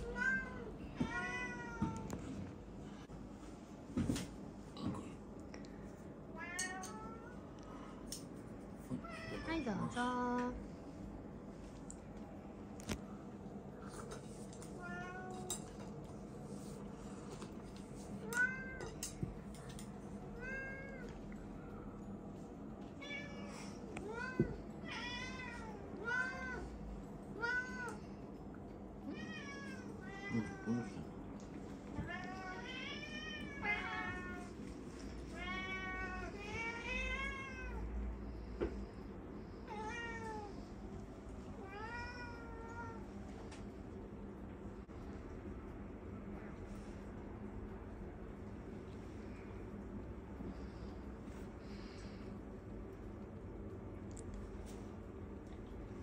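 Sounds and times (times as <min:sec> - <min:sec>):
cats meowing: 0:00.0 - 0:02.4.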